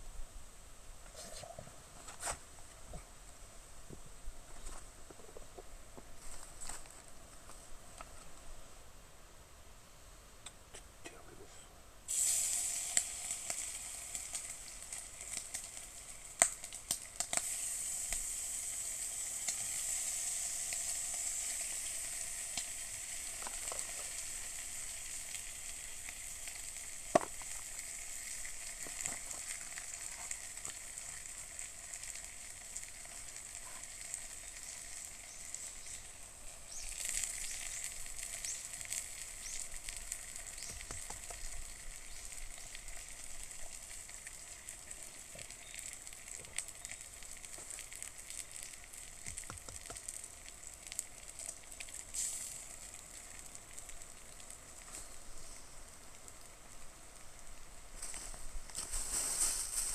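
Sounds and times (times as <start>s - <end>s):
food sizzling in a frying pan: 12.1s - 59.9s
sharp pops: 16.3s - 17.5s, 27.0s - 27.8s, 36.8s - 41.6s.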